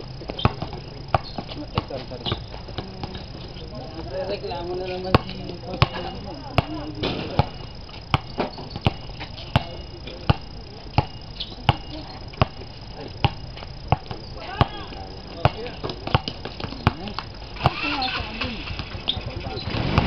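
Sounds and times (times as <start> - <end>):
people talking: 0.0 - 20.0
basketball dribbling on hard court: 0.3 - 3.3, 5.0 - 6.8, 7.4 - 18.1.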